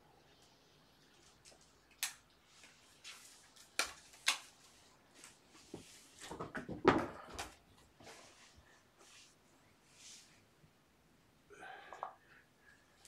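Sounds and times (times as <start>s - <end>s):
knocks and rustling: 5.7s - 8.1s.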